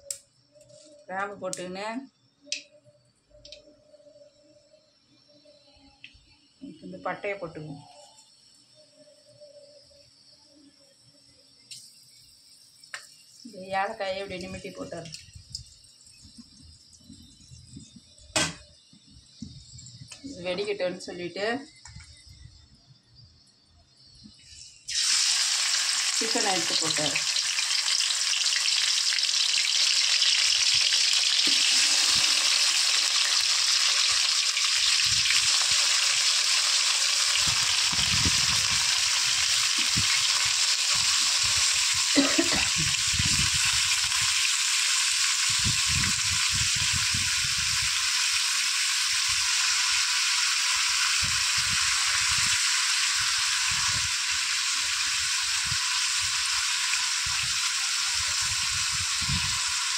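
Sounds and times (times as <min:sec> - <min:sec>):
chicken sizzling in hot oil: 0:24.1 - 0:59.9.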